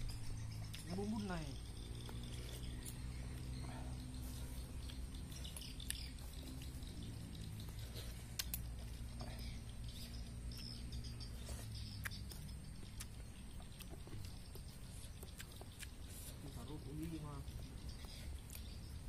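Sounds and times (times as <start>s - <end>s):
sharp clicks: 8.4s - 8.7s.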